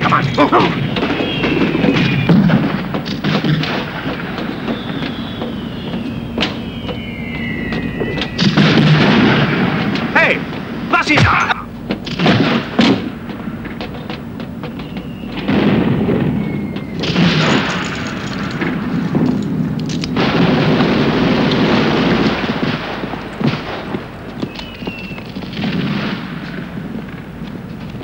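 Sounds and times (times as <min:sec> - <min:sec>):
explosions: 0:00.0 - 0:13.9, 0:14.8 - 0:24.6
gunfire cracks: 0:00.4 - 0:06.6, 0:14.7 - 0:27.3.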